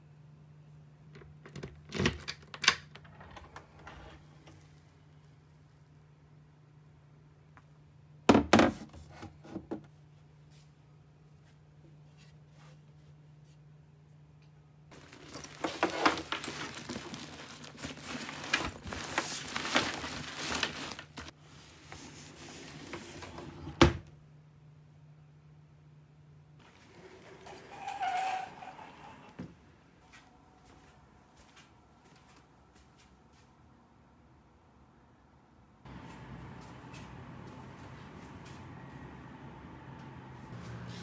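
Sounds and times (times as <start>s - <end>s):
rustling and clattering: 14.9s - 23.3s.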